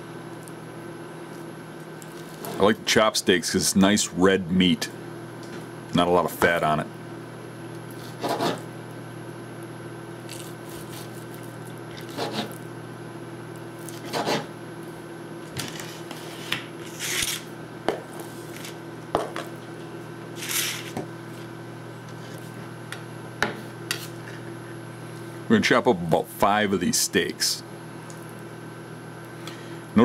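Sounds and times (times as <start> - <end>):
steady low hum: 0.0 - 30.0
knife cutting on cutting board: 8.0 - 8.6, 10.3 - 11.4, 12.0 - 12.6, 13.8 - 14.5
knife scraping board: 8.0 - 8.7, 10.3 - 12.6, 13.8 - 14.5, 15.7 - 17.5, 20.4 - 21.0, 23.9 - 24.4.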